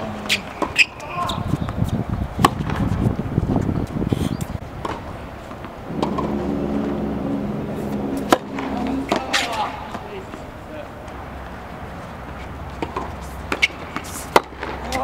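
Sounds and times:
low steady hum: 5.9s - 10.6s.

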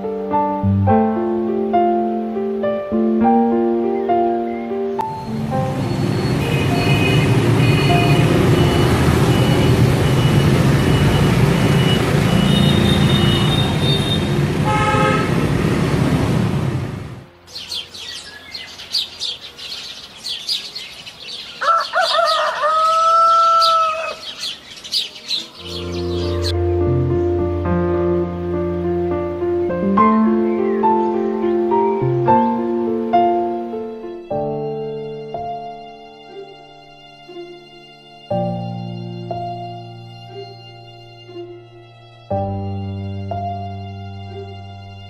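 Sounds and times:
birds chirping: 3.9s - 14.3s, 17.5s - 27.0s
road traffic: 3.9s - 45.0s
short horn toots: 12.4s - 15.4s
rooster crowing: 21.4s - 24.5s.

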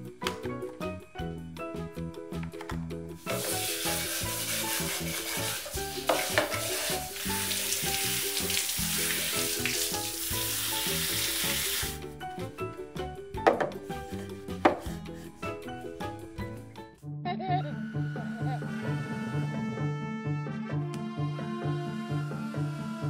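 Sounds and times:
background music: 0.0s - 23.0s
shower head spraying water: 3.2s - 12.0s.

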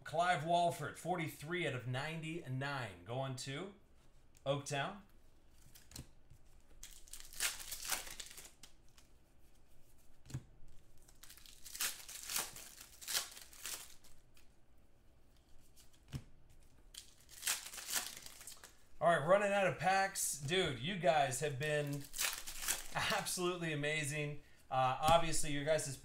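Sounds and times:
wrappers tearing and crinkling: 6.8s - 9.0s, 11.0s - 14.5s, 16.8s - 18.9s, 21.8s - 23.4s.

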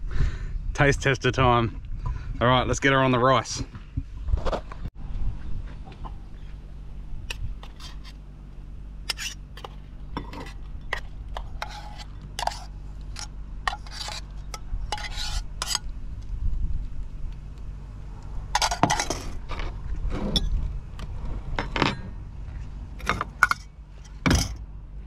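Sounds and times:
steady low hum: 0.0s - 25.0s
spoon scraping metal pot: 10.2s - 15.8s.

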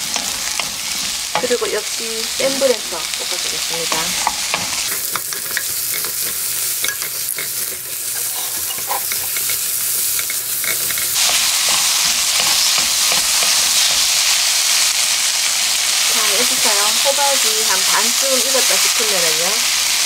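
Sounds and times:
spatula scraping a pan: 0.0s - 1.8s, 3.4s - 14.4s
vegetables sizzling in oil: 0.0s - 20.0s.

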